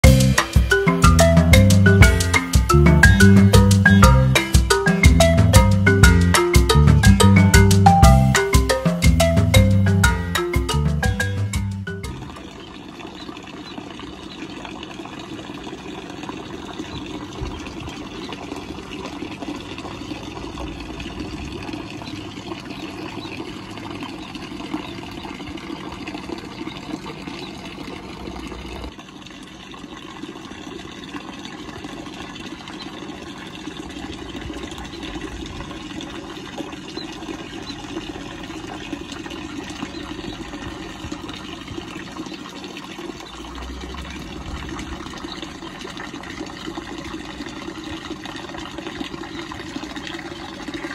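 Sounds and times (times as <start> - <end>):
fountain water splashing: 0.0 - 50.9.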